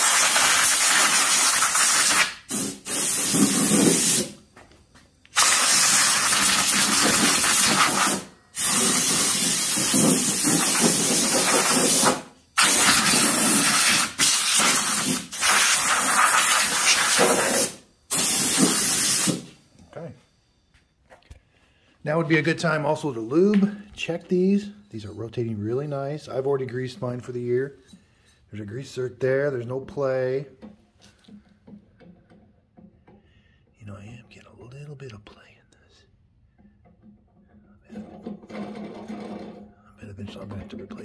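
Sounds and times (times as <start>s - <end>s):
compressed air gun hissing: 0.0s - 4.4s, 5.3s - 19.6s.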